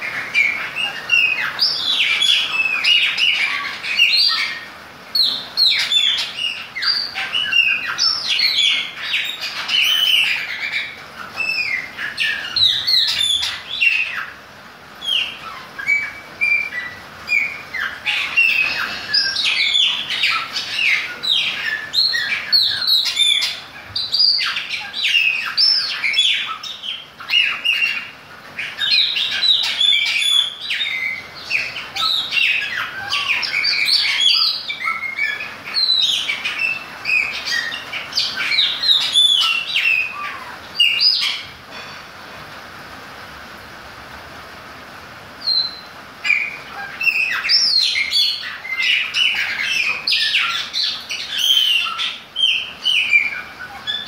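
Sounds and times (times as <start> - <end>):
blackbird singing: 0.0 - 14.4, 15.0 - 41.9, 45.4 - 54.0
steady hiss: 0.0 - 54.0.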